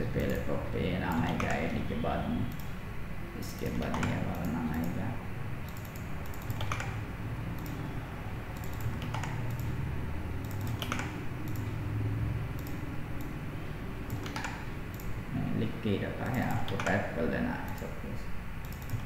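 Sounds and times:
steady low hum: 0:00.0 - 0:19.0
computer keyboard keys clicking: 0:00.1 - 0:00.5, 0:01.1 - 0:01.7, 0:03.6 - 0:05.0, 0:05.6 - 0:07.0, 0:07.6 - 0:07.8, 0:08.5 - 0:09.8, 0:10.4 - 0:11.8, 0:12.5 - 0:13.4, 0:14.0 - 0:15.2, 0:16.2 - 0:18.0, 0:18.6 - 0:19.0.

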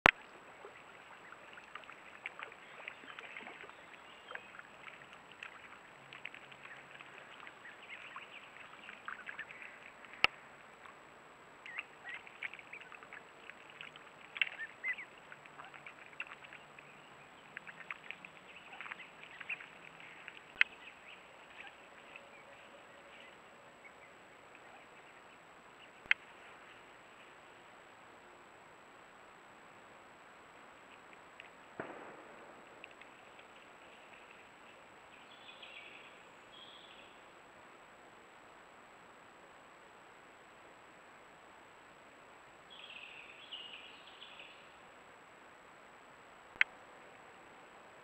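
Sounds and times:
ducklings peeping: 0:00.1 - 0:10.3, 0:11.7 - 0:26.1.

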